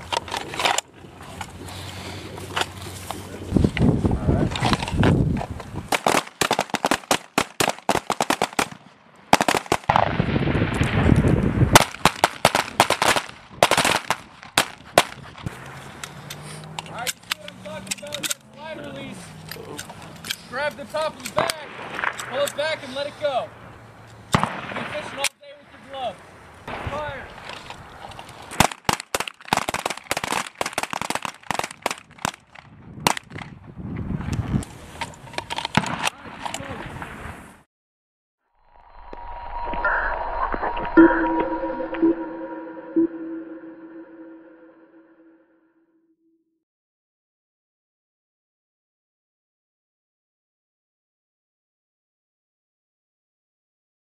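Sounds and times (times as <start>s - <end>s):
rapid pistol shots: 5.9s - 10.1s.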